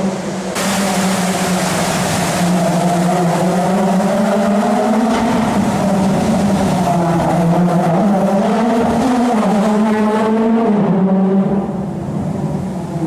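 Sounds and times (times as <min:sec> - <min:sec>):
rally car engine at high revs: 0:00.0 - 0:13.0.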